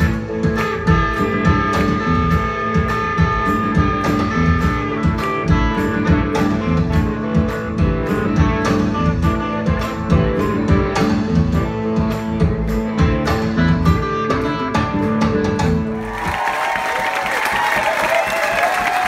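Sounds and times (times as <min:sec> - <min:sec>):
desert blues band playing: 0:00.0 - 0:16.2.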